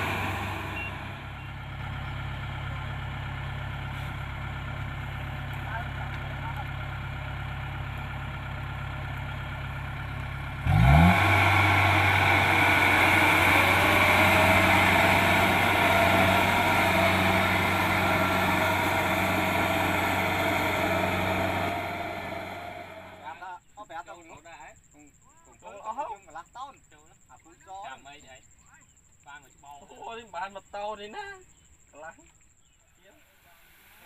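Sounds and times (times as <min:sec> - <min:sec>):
harvesting machinery rushing: 0:00.0 - 0:01.5, 0:10.6 - 0:23.3
combine harvester diesel engine: 0:00.0 - 0:23.4.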